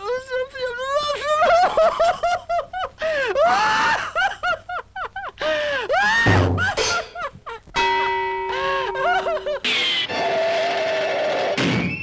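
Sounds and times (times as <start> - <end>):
cartoon cackling laughter: 8.5 - 11.0.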